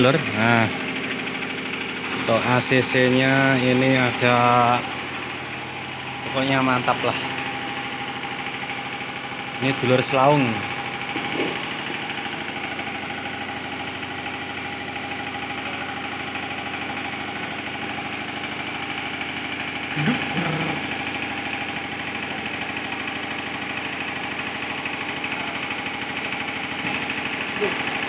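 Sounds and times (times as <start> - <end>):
diesel generator running: 0.0 - 28.0.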